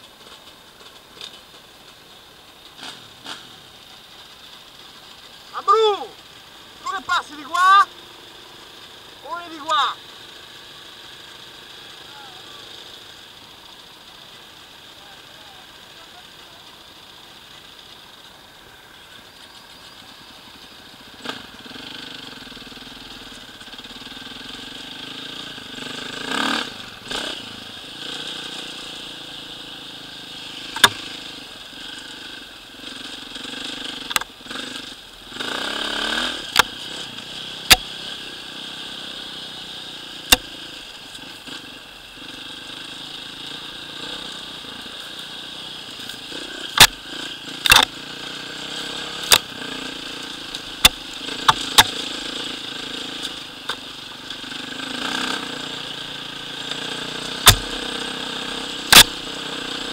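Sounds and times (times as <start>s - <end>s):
dirt bike engine revving: 2.7s - 3.8s, 5.4s - 14.2s, 20.5s - 59.9s
sharp knocks: 30.8s - 31.0s, 57.4s - 57.8s.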